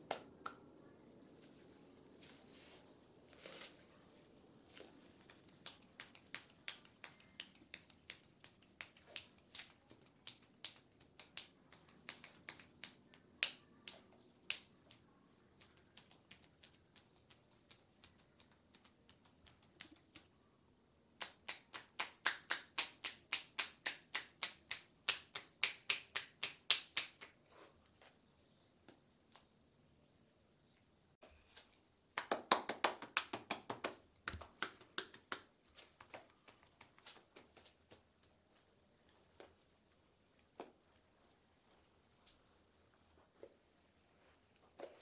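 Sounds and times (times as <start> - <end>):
hands slapping on arm: 4.7 - 20.4, 21.2 - 27.4, 32.2 - 38.4.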